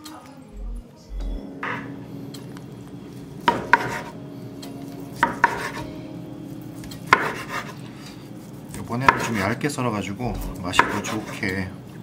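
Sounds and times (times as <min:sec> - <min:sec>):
knife slicing meat: 0:07.1 - 0:07.8, 0:09.1 - 0:09.5, 0:10.8 - 0:11.5.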